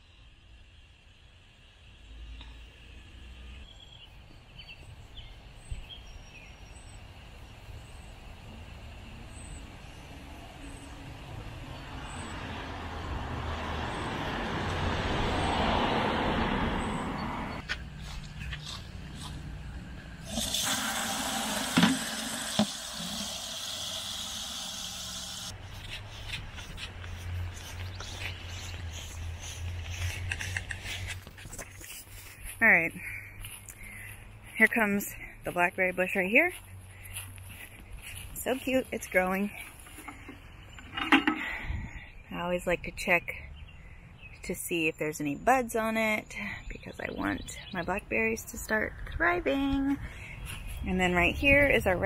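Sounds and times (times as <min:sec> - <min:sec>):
low rumble of wind or traffic: 0:00.0 - 0:52.0
birds chirping: 0:02.5 - 0:14.3, 0:16.8 - 0:20.3, 0:23.9 - 0:52.0
hose spraying water into bucket: 0:20.2 - 0:25.5.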